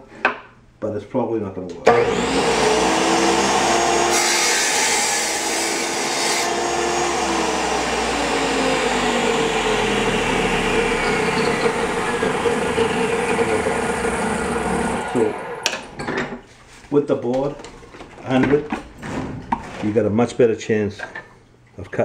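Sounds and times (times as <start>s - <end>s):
tile saw motor whine: 1.9s - 16.0s
saw blade grinding tile: 2.0s - 15.9s.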